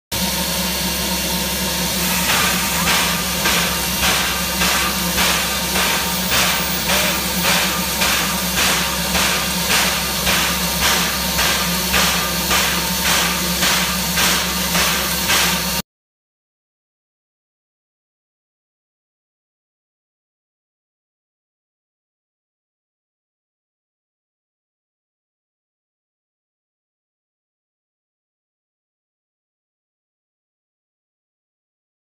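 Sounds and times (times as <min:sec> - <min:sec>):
steam locomotive hissing: 0:00.2 - 0:15.8
regular pulsing beat: 0:02.3 - 0:15.8.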